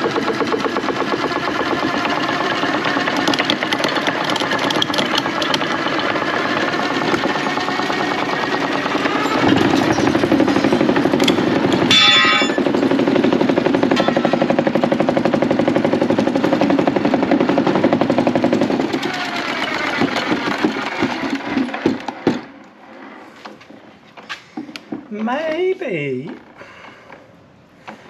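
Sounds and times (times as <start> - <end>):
turning tool chattering on log: 0.0 - 13.0
wood lathe spinning: 0.0 - 23.5.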